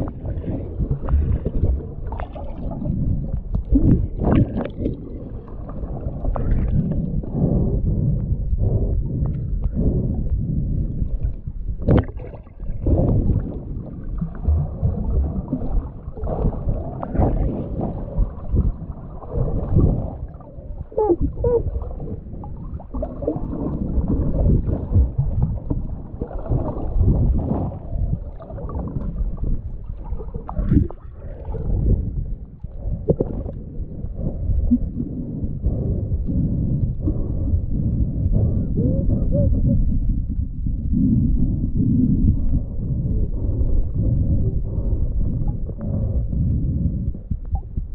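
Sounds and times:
underwater sloshing and bubbling: 0.0s - 47.9s.

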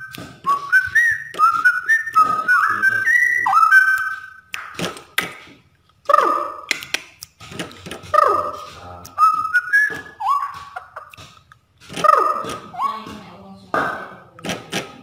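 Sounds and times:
bird whistling song: 0.0s - 4.8s, 8.2s - 11.2s, 12.0s - 13.2s
sharp clicks: 6.7s - 8.1s.

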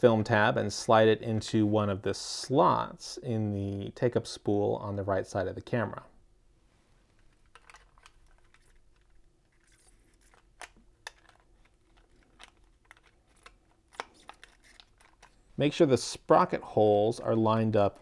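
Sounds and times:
film rustling: 6.9s - 15.6s.

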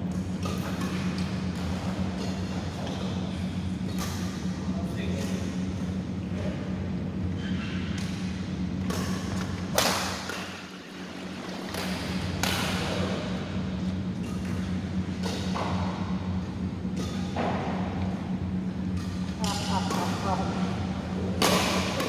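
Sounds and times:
rackets hitting shuttlecock: 0.0s - 3.0s, 7.9s - 10.7s, 11.6s - 22.0s
steady low hum: 0.0s - 22.0s.

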